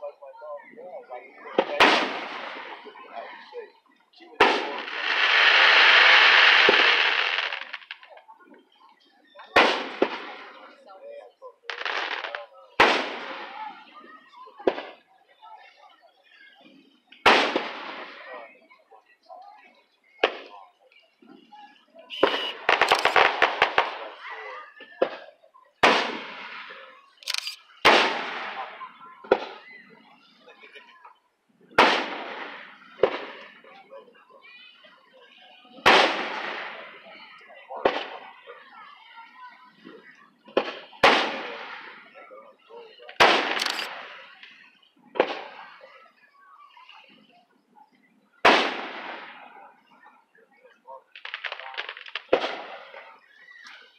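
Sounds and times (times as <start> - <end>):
fireworks cracking: 1.5 - 3.0, 4.4 - 8.7, 9.6 - 10.8, 11.6 - 13.7, 14.6 - 15.0, 17.2 - 18.3, 22.1 - 24.3, 25.0 - 29.7, 31.8 - 33.7, 35.8 - 38.3, 39.9 - 42.2, 43.0 - 46.2, 48.4 - 49.8, 51.0 - 53.9
fireworks booms: 1.6 - 3.0, 4.4 - 8.2, 17.2 - 18.2, 22.1 - 24.2, 48.4 - 49.6, 51.1 - 53.3.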